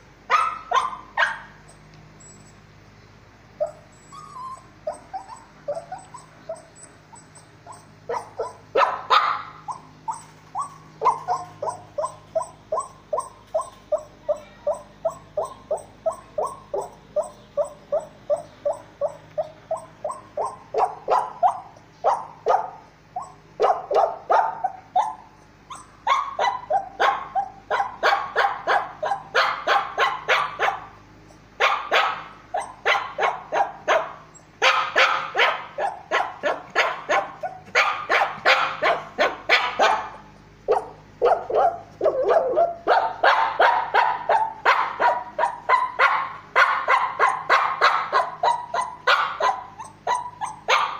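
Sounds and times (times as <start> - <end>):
dog whining and yipping: 0.3 - 2.6, 3.6 - 50.9.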